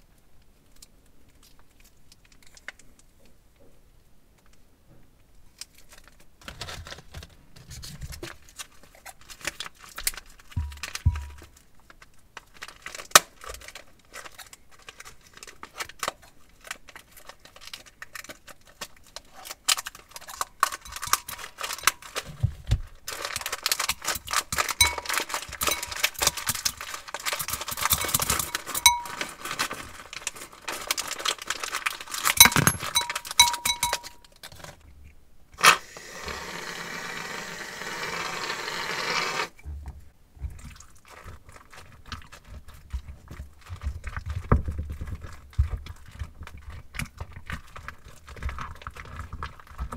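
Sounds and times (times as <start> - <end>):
plastic bag crinkling: 5.6 - 34.8.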